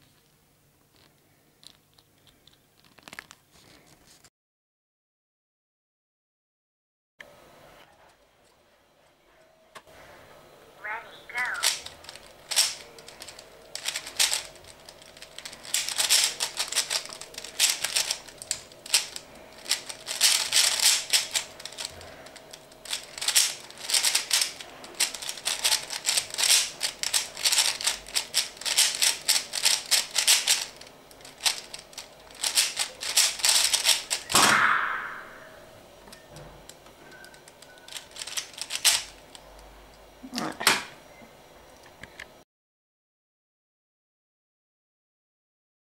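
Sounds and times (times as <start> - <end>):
plastic cube clicking and clacking: 11.6 - 34.4, 36.7 - 39.4.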